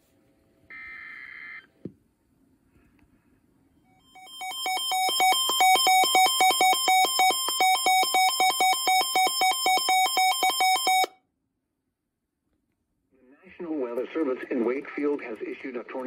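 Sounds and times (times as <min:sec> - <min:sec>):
fast two-tone electronic beeping: 0:04.2 - 0:11.1.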